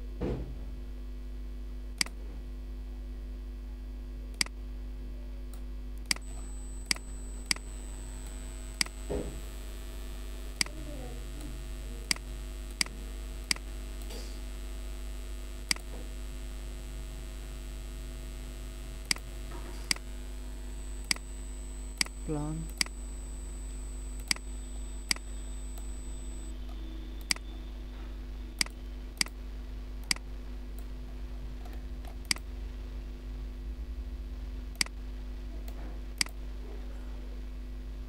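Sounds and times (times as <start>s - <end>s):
low mains hum: 0.0s - 38.0s
computer mouse clicking: 24.2s - 24.5s.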